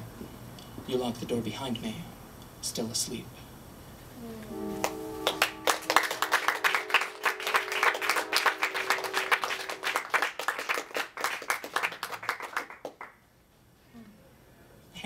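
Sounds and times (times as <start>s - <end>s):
small audience applauding: 4.5s - 13.2s.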